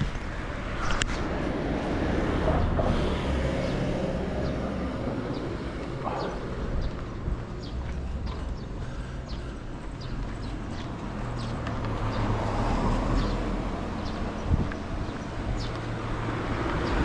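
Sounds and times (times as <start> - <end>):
car passing by: 0.0 - 6.4, 10.4 - 14.5
faint footsteps: 5.3 - 12.2.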